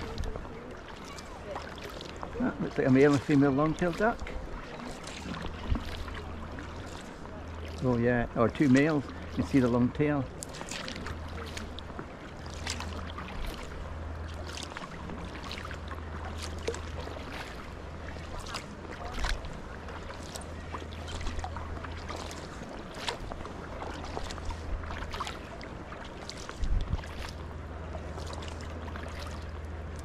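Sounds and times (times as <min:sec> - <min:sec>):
paddle splashes and drips: 0:00.0 - 0:30.0
wind rumble on microphone: 0:26.4 - 0:27.8.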